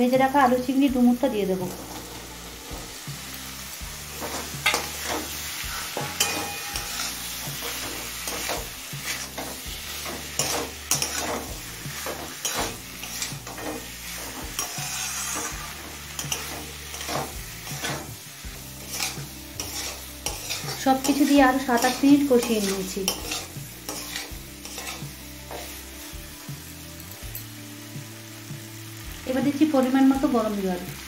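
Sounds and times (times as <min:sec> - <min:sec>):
food sizzling: 0:00.0 - 0:31.0
metal spatula scraping pan: 0:04.0 - 0:25.9.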